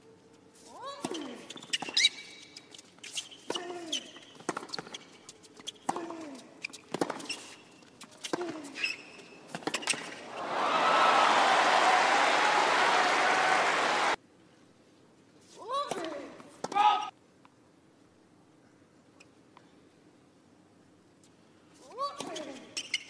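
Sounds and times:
crowd applause: 10.2 - 14.2.

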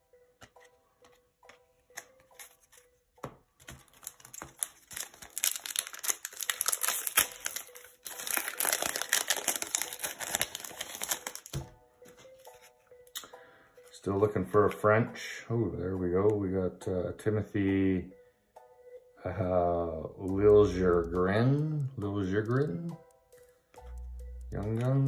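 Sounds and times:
foil card pack crinkling and tearing: 3.6 - 11.6.

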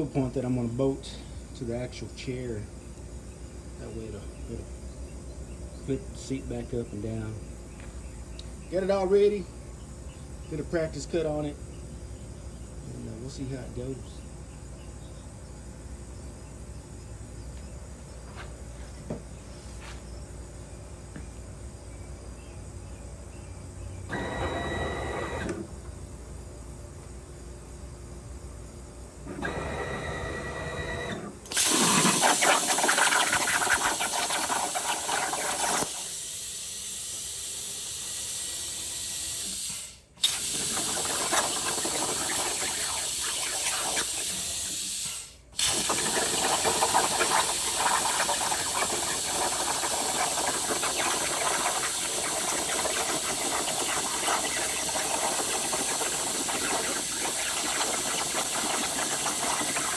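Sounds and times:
plasma cutter hissing: 31.5 - 38.3, 38.9 - 59.9.

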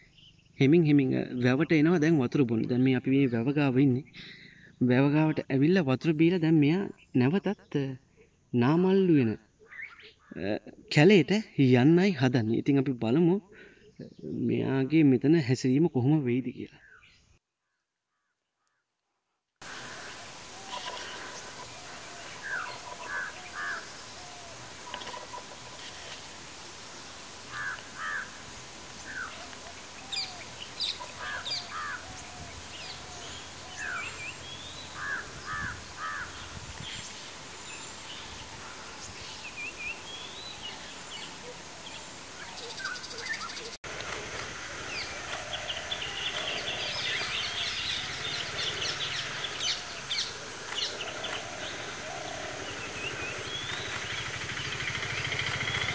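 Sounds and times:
wild birds calling: 0.0 - 5.5, 9.5 - 11.0, 13.4 - 14.6, 19.6 - 55.9
chorus of bird chirping: 0.0 - 5.7, 6.6 - 11.0, 19.6 - 55.9
steady high hiss: 19.6 - 55.9.

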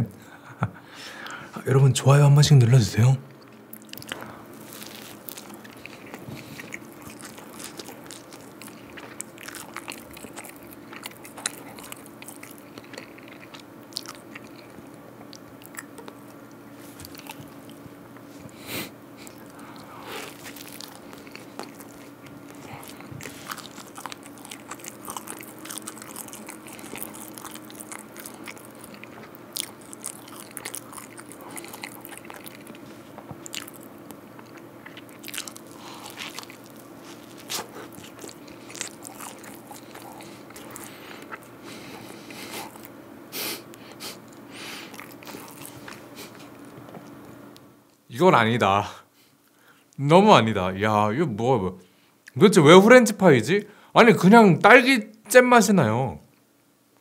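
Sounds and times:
biting and chewing sandwich: 3.4 - 47.4.

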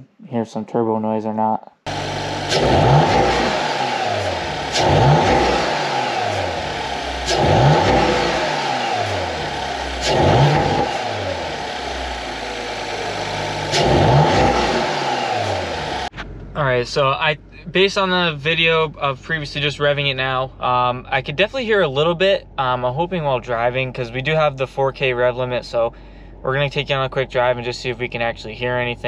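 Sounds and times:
turbo noise: 1.9 - 16.3
car engine revving: 1.9 - 16.5
exhaust cracking: 1.9 - 25.8.

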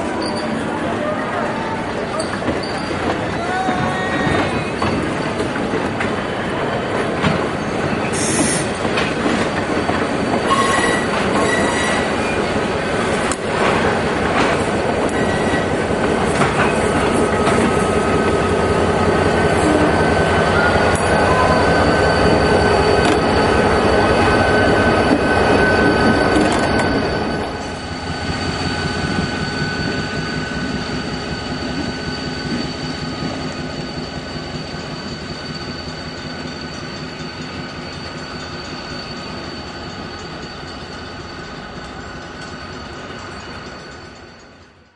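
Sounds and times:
train rolling past: 0.0 - 44.9
thin wheel squeal: 0.2 - 0.6, 2.2 - 3.1, 10.4 - 12.4, 15.1 - 15.8, 19.3 - 44.7
wheels clattering on rails: 2.1 - 20.1.

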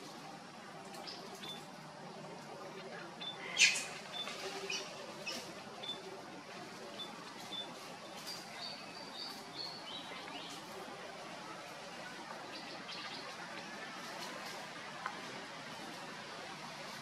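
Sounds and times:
steady outdoor hiss: 0.0 - 17.0
birds chirping: 0.8 - 1.9, 2.6 - 14.2.

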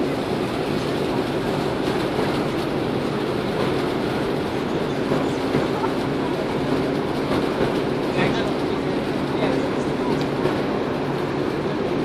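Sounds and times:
water noise: 0.0 - 7.7
ship engines rumbling: 0.0 - 12.0
wind: 0.0 - 12.0.

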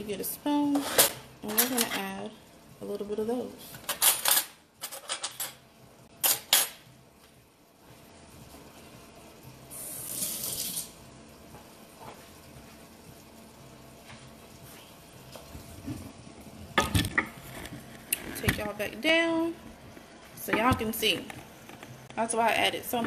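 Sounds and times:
metal utensils clattering: 3.9 - 5.6
water tap running: 9.7 - 11.0.

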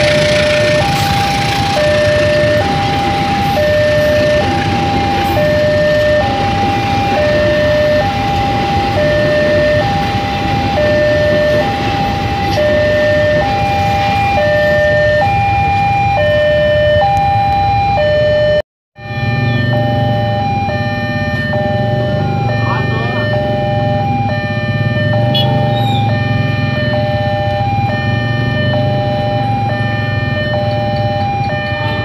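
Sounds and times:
freight train rumbling past: 0.0 - 15.9.

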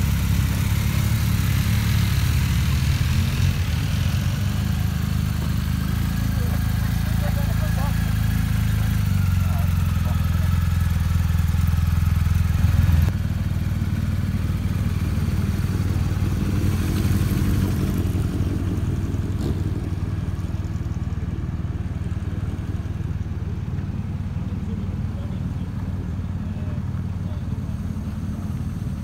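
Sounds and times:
motorcycle engine idling: 0.0 - 29.0
motorcycle engines rumbling: 0.0 - 29.0.

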